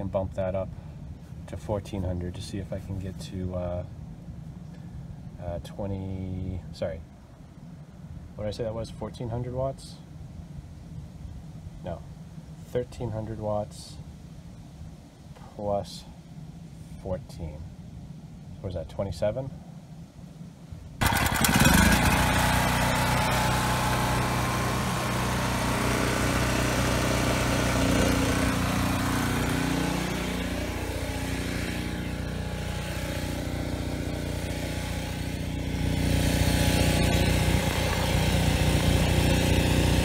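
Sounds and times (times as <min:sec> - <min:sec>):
generator engine running: 0:21.0 - 0:40.0.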